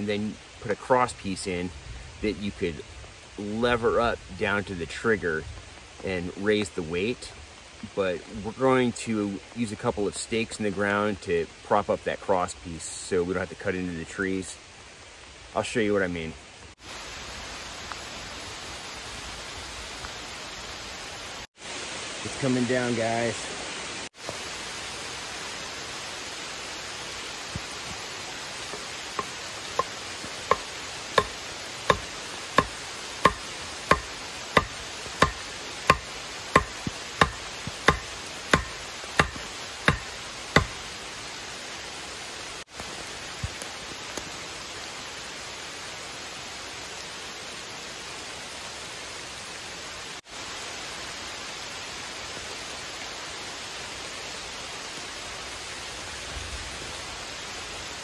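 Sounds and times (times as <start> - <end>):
rain hissing: 0.0 - 58.0
stake pounded into ground: 28.8 - 40.8.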